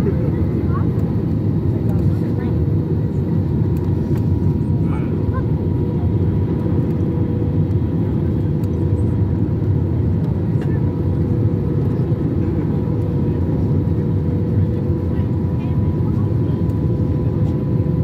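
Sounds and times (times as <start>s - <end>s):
engine and airflow rumble: 0.0s - 18.0s.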